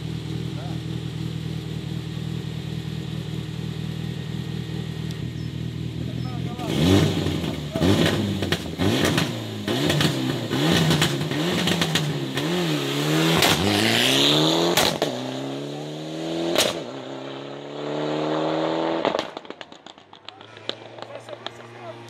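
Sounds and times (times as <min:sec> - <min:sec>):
rally car engine revving: 0:04.2 - 0:22.0
exhaust cracks: 0:04.7 - 0:14.0, 0:14.7 - 0:15.2, 0:18.9 - 0:22.0.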